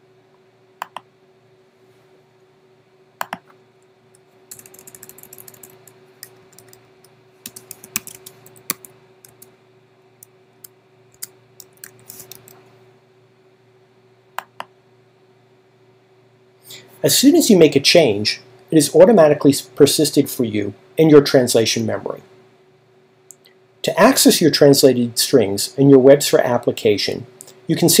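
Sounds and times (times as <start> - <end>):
typing on computer keyboard: 4.5 - 5.9, 6.5 - 6.8, 7.4 - 9.5.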